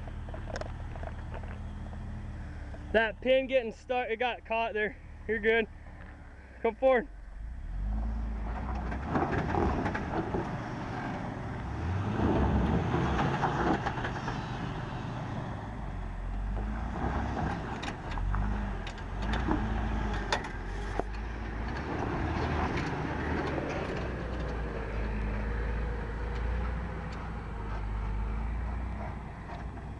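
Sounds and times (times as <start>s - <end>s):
car engine revving under throttle: 7.4s - 29.1s.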